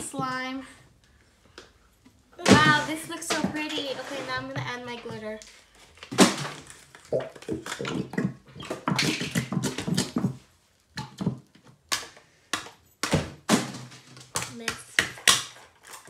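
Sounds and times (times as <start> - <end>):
glitter rattling in plastic bottles: 2.4 - 12.1, 13.3 - 16.0.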